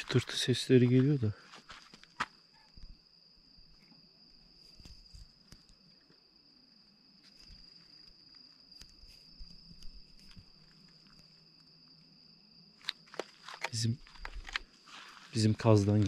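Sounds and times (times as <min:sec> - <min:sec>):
crickets trilling: 0:00.0 - 0:16.0
soft clicks and rustles: 0:12.8 - 0:16.0.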